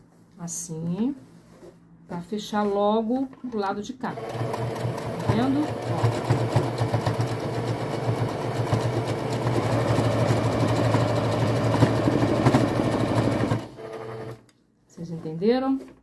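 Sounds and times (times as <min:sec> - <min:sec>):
sewing machine stitching: 0:04.0 - 0:14.4.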